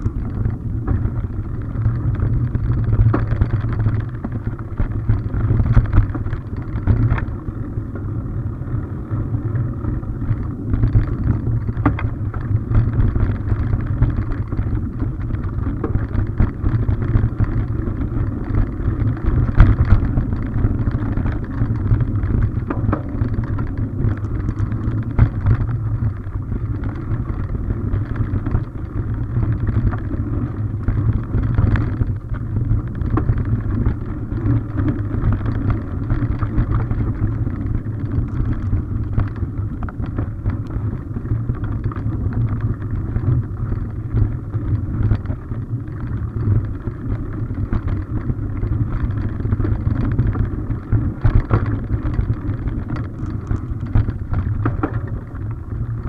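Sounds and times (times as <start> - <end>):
bike knocks and rattles: 0.0 - 8.8, 9.4 - 56.0
bike tyres on dirt trail: 0.0 - 56.0.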